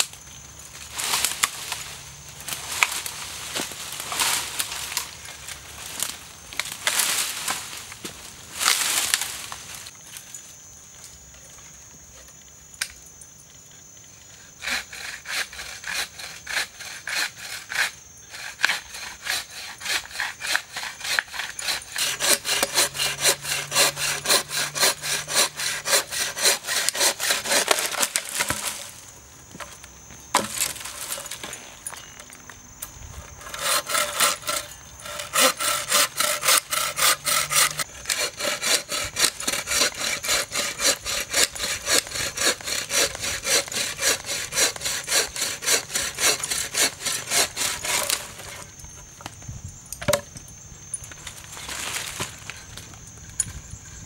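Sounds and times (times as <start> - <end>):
hand saw cutting wood: 14.6 - 28.8, 33.4 - 48.7.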